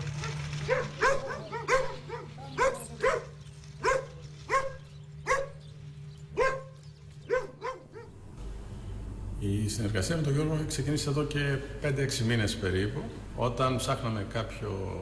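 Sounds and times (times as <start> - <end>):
dog barking: 0.2 - 5.6, 6.4 - 8.1.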